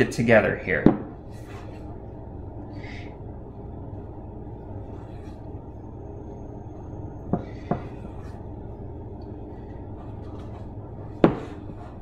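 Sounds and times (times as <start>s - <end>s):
low background hum: 0.0s - 12.0s
spatula scraping dough in bowl: 9.9s - 12.0s.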